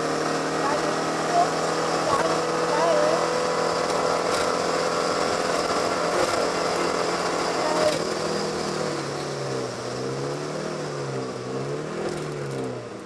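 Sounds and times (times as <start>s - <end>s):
car engine revving: 0.0s - 13.0s.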